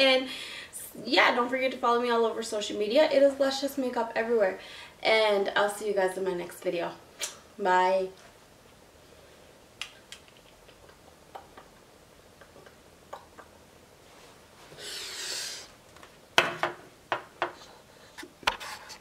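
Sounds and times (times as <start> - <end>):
soft rush of noise: 3.0 - 16.3.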